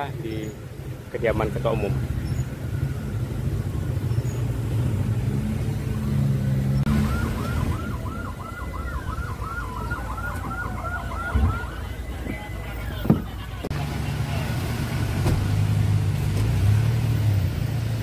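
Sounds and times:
electronic siren yelping: 6.8 - 13.0.

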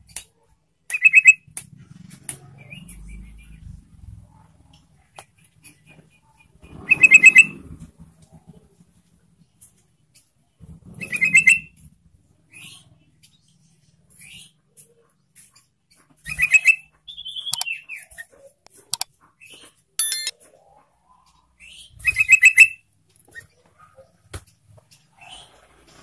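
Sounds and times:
bulbul chattering song: 20.0 - 20.3.

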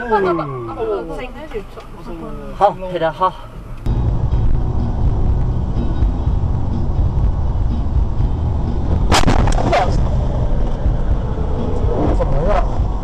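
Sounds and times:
road and engine rumble: 0.0 - 13.0
sharp cracks: 8.9 - 10.9.

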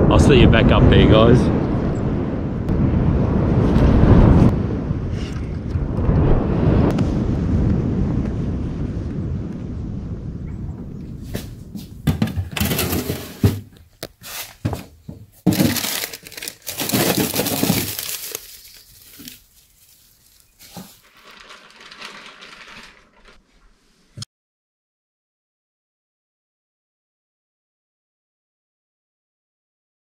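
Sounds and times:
gear rustling and crinkling: 12.4 - 23.8.

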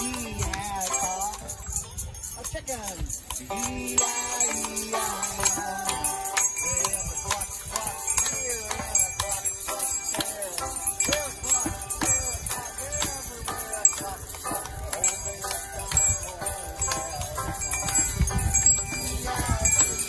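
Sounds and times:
shakers and wooden rattles: 0.0 - 20.0
tambourines jingling: 0.0 - 20.0.

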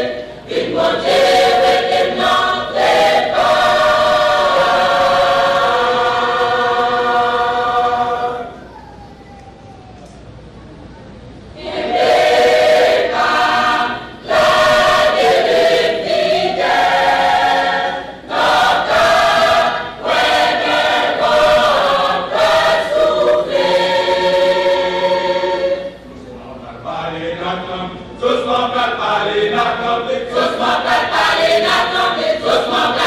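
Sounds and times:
church choir singing: 0.0 - 8.6, 11.6 - 26.1, 26.9 - 33.0.

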